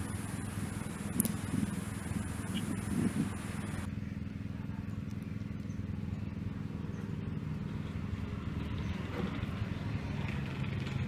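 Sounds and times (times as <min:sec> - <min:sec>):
motor humming: 0:00.0 - 0:03.9.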